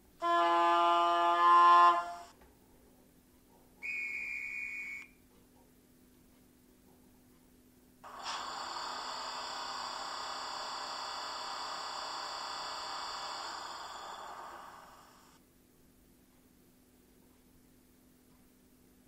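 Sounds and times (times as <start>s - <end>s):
air compressor sound through small speaker: 8.0s - 15.4s.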